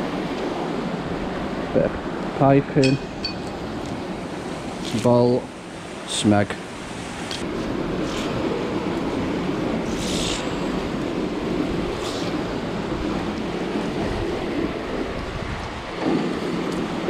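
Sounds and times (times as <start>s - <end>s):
wind rumble on microphone: 6.8s - 17.0s.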